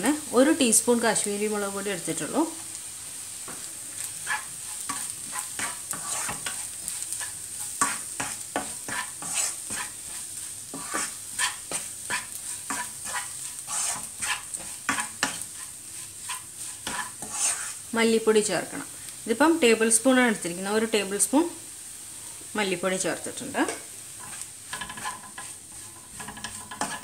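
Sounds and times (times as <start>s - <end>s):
onions sizzling in oil: 0.0s - 27.0s
spatula scraping a pan: 3.5s - 17.9s, 23.6s - 27.0s.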